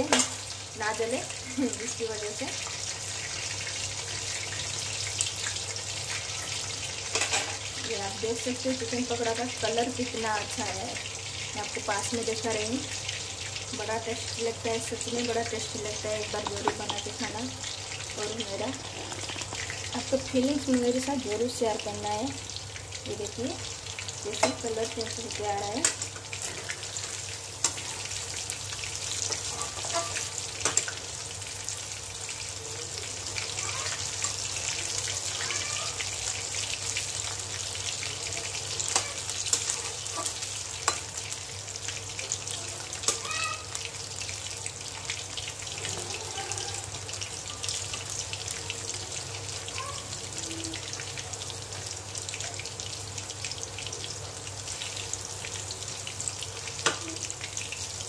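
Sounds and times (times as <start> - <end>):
food sizzling in hot oil: 0.0 - 58.0
metal spoon clinking on pan: 24.4 - 24.7, 29.3 - 31.0.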